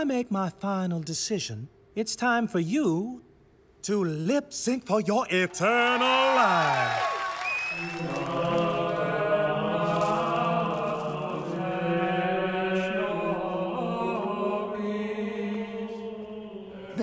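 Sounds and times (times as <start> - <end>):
choir singing long held notes: 7.6 - 17.0.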